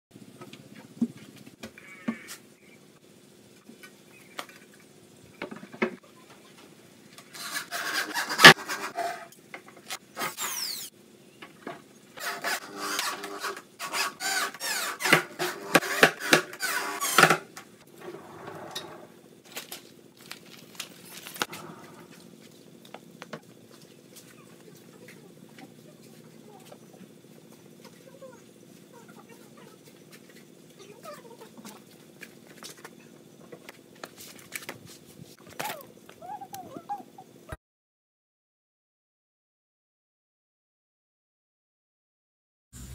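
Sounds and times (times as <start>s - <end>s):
electric drill driving screws: 7.3s - 8.9s, 10.2s - 10.9s, 12.2s - 17.5s.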